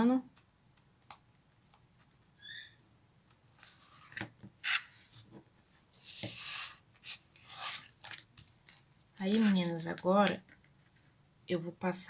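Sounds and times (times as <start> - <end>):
faint chirp: 2.4 - 2.8.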